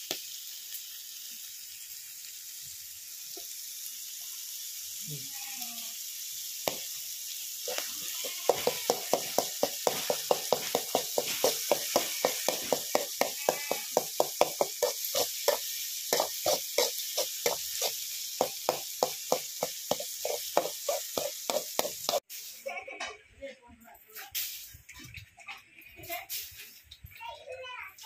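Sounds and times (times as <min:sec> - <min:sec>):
food sizzling in metal pot: 0:00.0 - 0:23.0, 0:24.1 - 0:27.2
metal spatula scraping pot: 0:07.7 - 0:22.2.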